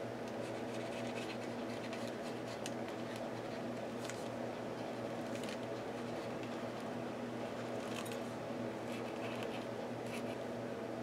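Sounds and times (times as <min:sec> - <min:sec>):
marker scratching on paper: 0:00.5 - 0:02.6.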